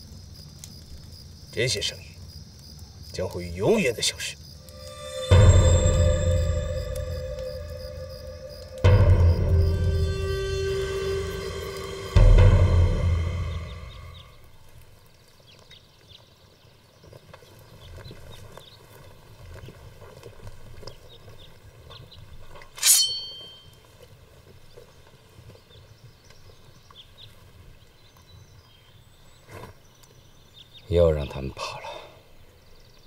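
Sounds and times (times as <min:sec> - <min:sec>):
sharp metallic clank: 0:04.6 - 0:14.4, 0:22.8 - 0:23.7.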